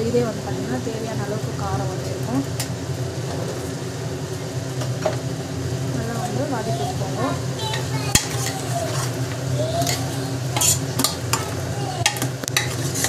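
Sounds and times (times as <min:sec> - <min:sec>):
food sauteing: 0:00.0 - 0:13.0
metal spoon scraping a pot: 0:07.7 - 0:13.0.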